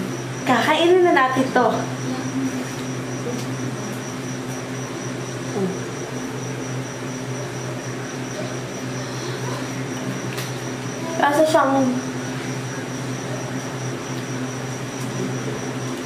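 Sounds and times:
electrical appliance humming: 0:00.0 - 0:16.0
faint high whine: 0:00.0 - 0:16.0.

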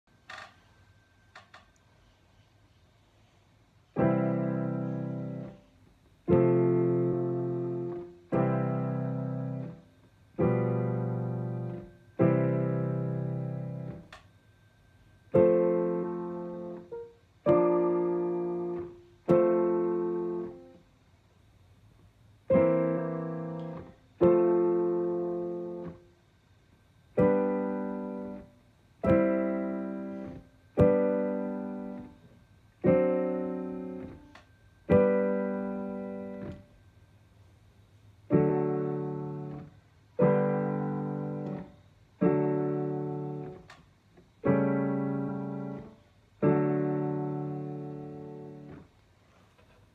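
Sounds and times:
digital piano chords: 0:04.0 - 0:14.2, 0:15.1 - 0:20.8, 0:22.5 - 0:26.0, 0:27.1 - 0:36.7, 0:38.3 - 0:43.7, 0:44.3 - 0:48.9.

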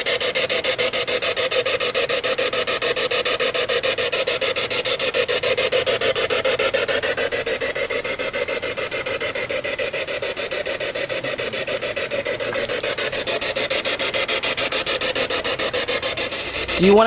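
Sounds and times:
stuttering radio static: 0:00.0 - 0:17.0.

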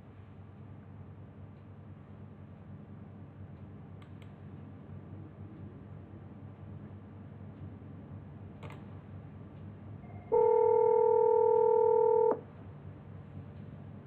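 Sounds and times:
telephone ringback tone: 0:10.1 - 0:12.4.

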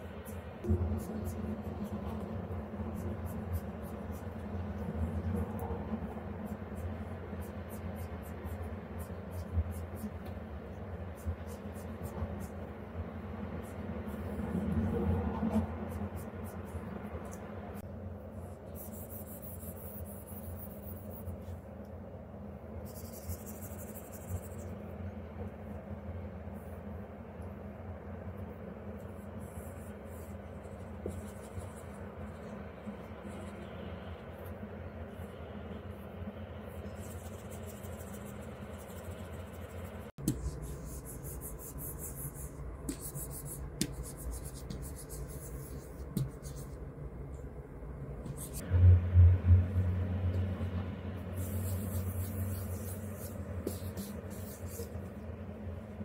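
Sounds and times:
steady low hum: 0:00.0 - 0:56.0
stylus rubbing and tapping on screen: 0:13.5 - 0:22.0, 0:22.8 - 0:25.6, 0:29.0 - 0:33.7, 0:36.8 - 0:46.9, 0:48.2 - 0:48.6, 0:51.3 - 0:55.2
pen tapping on screen: 0:43.8 - 0:44.8.

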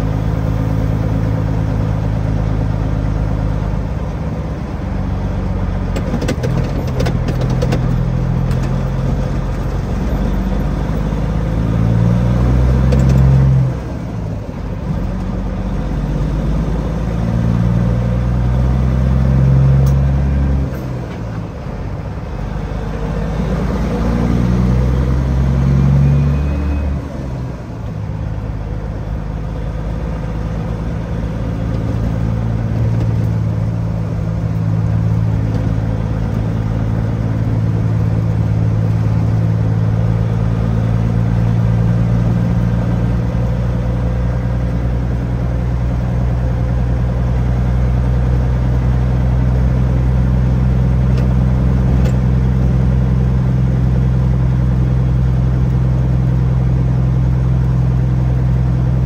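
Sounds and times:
truck diesel engine droning: 0:00.0 - 0:59.0.

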